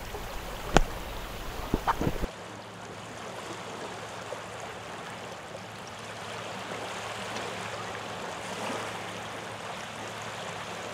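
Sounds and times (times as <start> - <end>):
faint low hum: 0.0 - 2.3
small waves washing on shore: 0.0 - 10.9.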